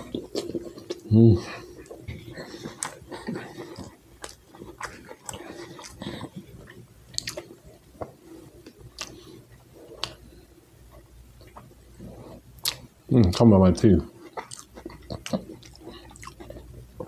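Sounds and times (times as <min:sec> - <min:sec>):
mouth smacking: 0:00.0 - 0:09.2, 0:12.6 - 0:12.9
man chewing food: 0:00.0 - 0:13.4, 0:14.1 - 0:17.0.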